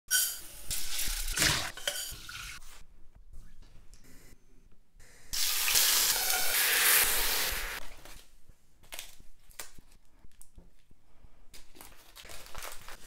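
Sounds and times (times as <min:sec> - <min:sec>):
chicken sizzling in a frying pan: 0:05.4 - 0:07.8
water running into a pot: 0:05.4 - 0:07.8.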